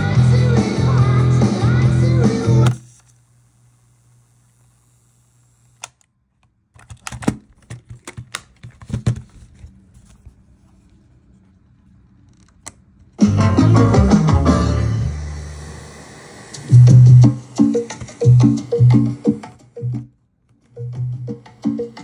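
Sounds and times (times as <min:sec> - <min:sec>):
music from cassette tape: 0:00.0 - 0:03.3, 0:13.2 - 0:22.0.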